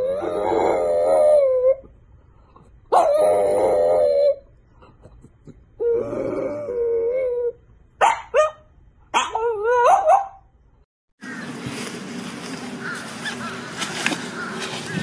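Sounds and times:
dog howling: 0.0 - 1.9, 2.9 - 4.4
noisy outdoor background: 0.0 - 15.0
dog yelps: 2.9 - 4.5, 6.7 - 10.5.

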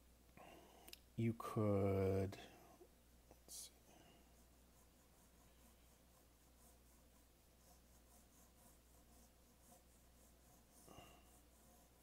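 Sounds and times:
pencil scratching on paper: 3.4 - 12.0.

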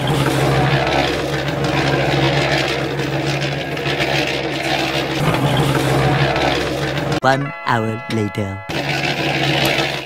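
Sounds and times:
small electric motor humming: 0.0 - 10.0.

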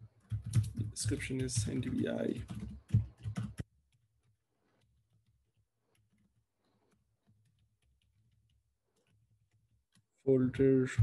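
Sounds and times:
keyboard typing clicks: 0.2 - 4.0.

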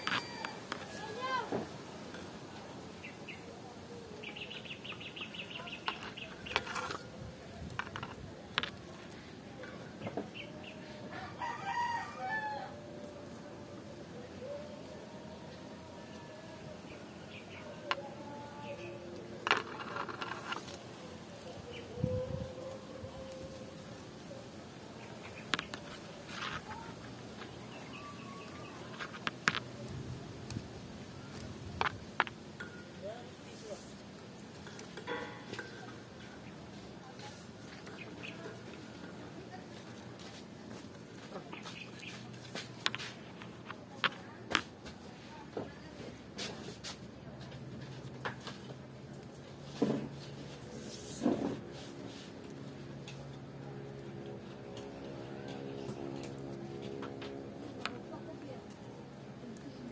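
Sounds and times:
rooster crowing: 0.0 - 1.0, 11.1 - 13.0
palm leaves rustling and crackling: 0.0 - 59.9
leaf rustle: 18.6 - 37.8.

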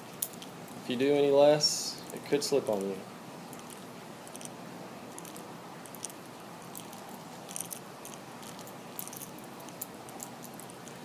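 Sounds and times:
background hiss: 0.0 - 11.0
fishing line ticks and rustles: 2.0 - 4.6, 5.2 - 11.0.

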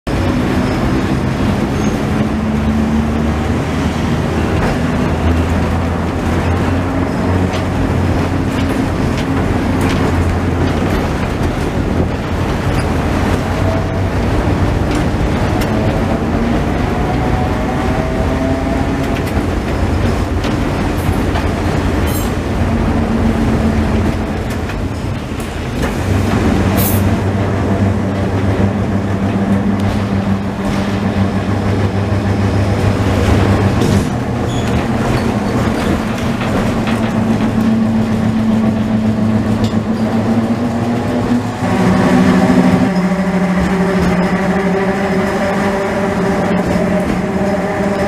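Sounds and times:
tram rumble and whine: 0.0 - 48.0
running gear clicks and knocks: 33.3 - 41.1.

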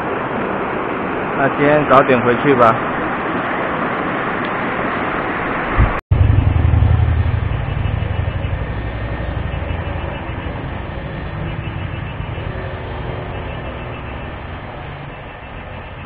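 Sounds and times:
low rumble with faint hum: 5.7 - 16.0.

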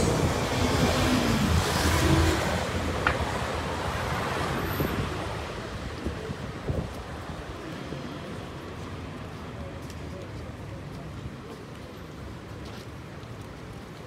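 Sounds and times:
passing cars: 0.0 - 9.3.

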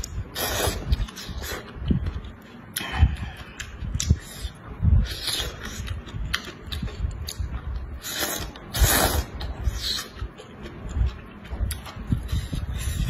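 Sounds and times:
wet chewing: 0.0 - 13.0
loud noodle slurp: 0.3 - 1.6, 8.0 - 10.1.

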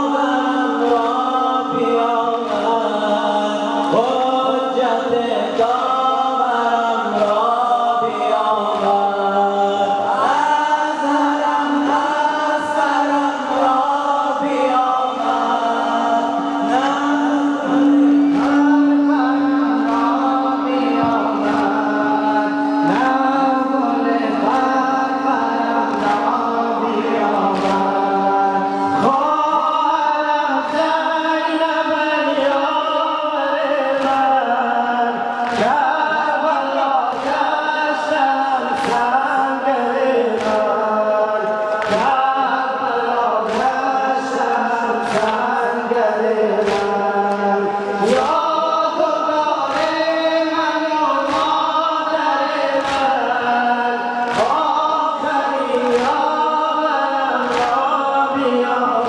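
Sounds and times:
men chanting in unison: 0.0 - 59.0
rhythmic chest-beating: 0.0 - 59.0.

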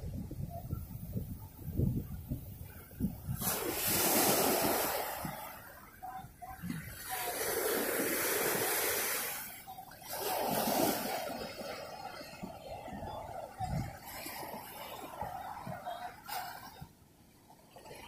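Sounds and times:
ocean surf breaking: 3.0 - 16.9.

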